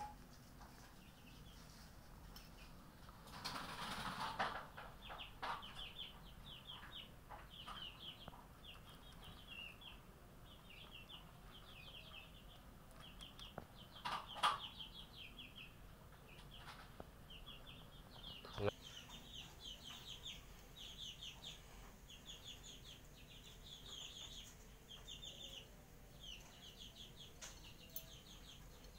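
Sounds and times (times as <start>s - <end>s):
high chirping: 0.0s - 0.2s.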